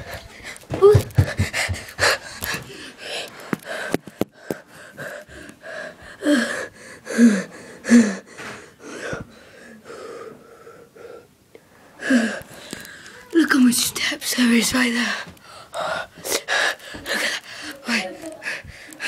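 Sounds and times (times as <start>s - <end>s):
boy gasping for breath: 0.0s - 11.3s, 12.0s - 13.3s, 15.0s - 19.0s.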